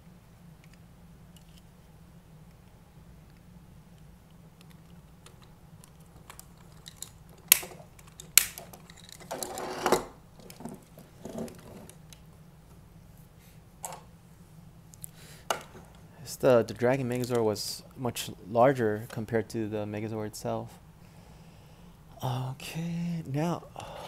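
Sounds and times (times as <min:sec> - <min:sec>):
plastic toy parts clicking: 0:04.6 - 0:09.5.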